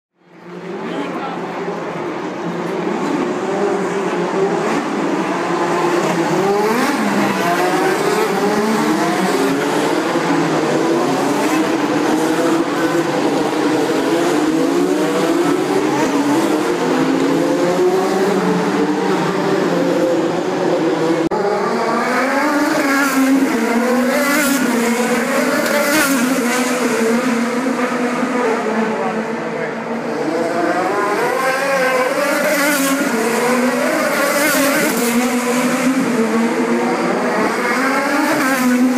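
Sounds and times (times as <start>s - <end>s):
race cars passing at speed: 0.3s - 38.9s.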